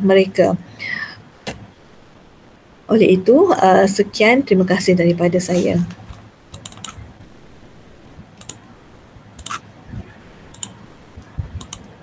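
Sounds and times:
soft low bumps: 6.0s - 11.7s
computer mouse clicks: 6.1s - 7.0s, 8.4s - 8.6s, 9.4s - 9.6s, 10.5s - 10.8s, 11.4s - 11.9s.

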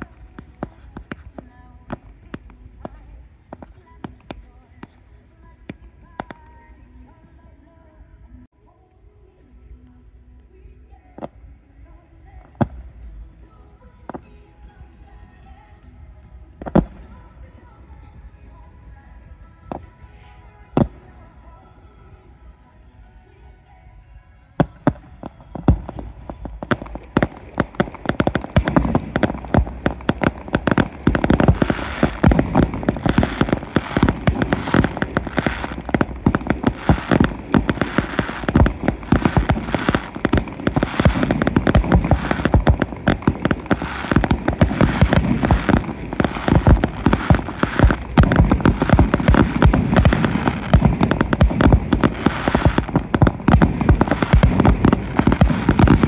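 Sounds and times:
fireworks bangs and crackles: 0.0s - 6.7s, 14.1s - 21.6s, 24.6s - 56.0s.

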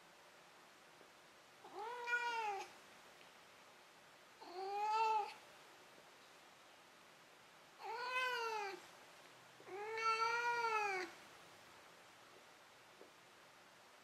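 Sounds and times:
cat meowing: 1.6s - 2.7s, 4.4s - 5.4s, 7.8s - 8.8s, 9.7s - 11.2s.

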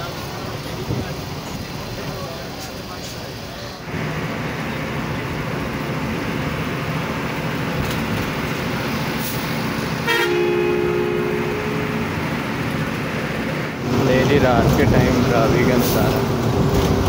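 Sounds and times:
bus engine and road noise: 0.0s - 17.0s
two-tone horn blast: 10.0s - 12.7s.

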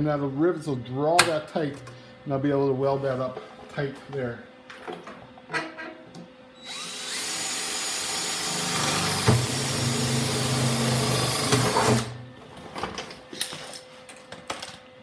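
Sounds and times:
power drill drilling sheet steel: 6.6s - 12.2s.

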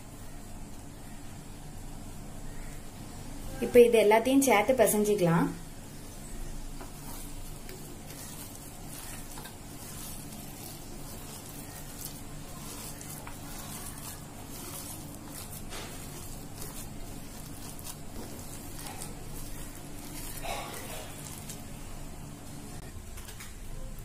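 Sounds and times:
low steady hum: 0.0s - 24.0s
hand squishing paste in a bowl: 4.9s - 22.9s.

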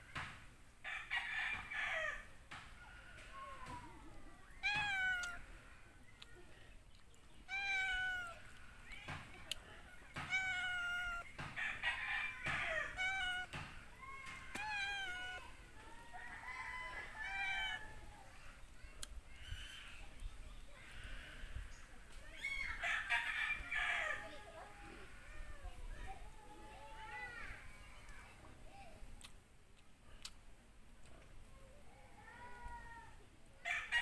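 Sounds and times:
cat meowing: 4.6s - 5.4s, 7.4s - 8.4s, 10.1s - 11.3s, 12.4s - 13.6s, 14.2s - 15.5s, 17.2s - 18.0s.

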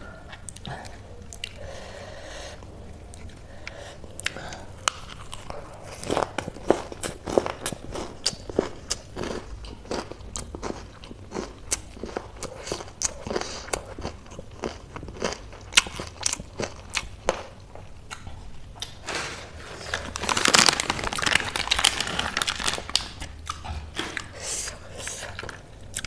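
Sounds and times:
chewing and crunching food: 0.0s - 2.0s, 2.6s - 26.0s
plastic packet crinkling: 18.8s - 23.4s.

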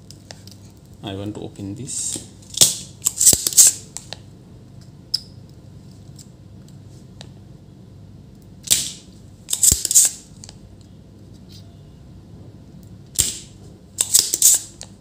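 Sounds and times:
desoldering pump snap: 13.2s - 14.9s.

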